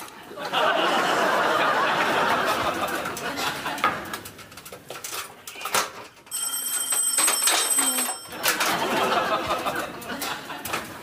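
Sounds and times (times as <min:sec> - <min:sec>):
audience laughter: 0:00.0 - 0:04.2, 0:08.4 - 0:11.0.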